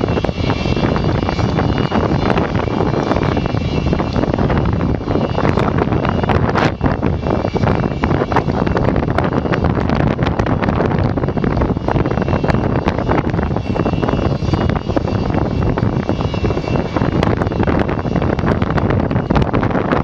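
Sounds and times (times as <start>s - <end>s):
faint high whine: 0.0s - 20.0s
jet engines rumbling: 0.0s - 20.0s.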